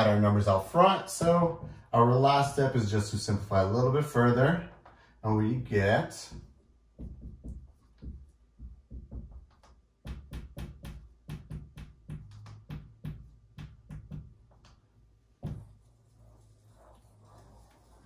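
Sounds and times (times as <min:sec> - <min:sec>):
marker writing on whiteboard: 0:06.2 - 0:18.0
loud knock: 0:06.3 - 0:14.4.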